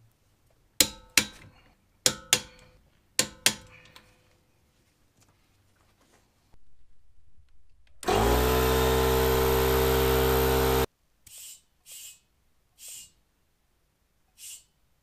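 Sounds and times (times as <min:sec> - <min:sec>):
air compressor motor humming: 0:08.0 - 0:10.9.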